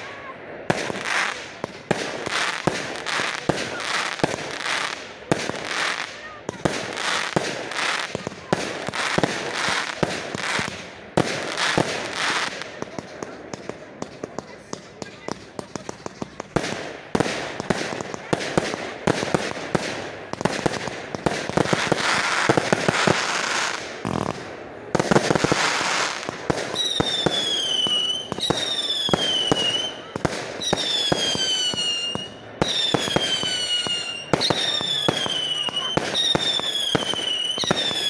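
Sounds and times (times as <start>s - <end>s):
fireworks banging and crackling: 0.0s - 38.0s
falling firework whistles: 30.6s - 38.0s.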